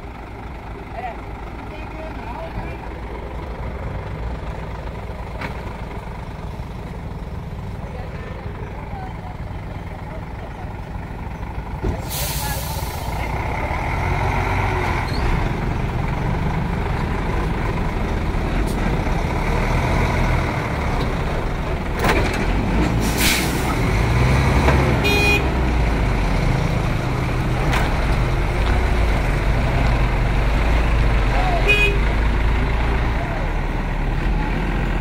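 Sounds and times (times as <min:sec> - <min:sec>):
diesel truck engines under load: 0:00.0 - 0:35.0
air brake hiss: 0:12.0 - 0:13.2, 0:23.0 - 0:23.8.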